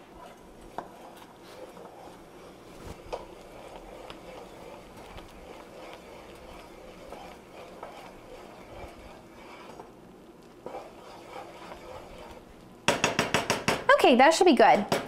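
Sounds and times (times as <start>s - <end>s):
wooden spoon scraping saucepan: 0.0s - 13.8s
spoon knocking on pot: 12.9s - 13.9s.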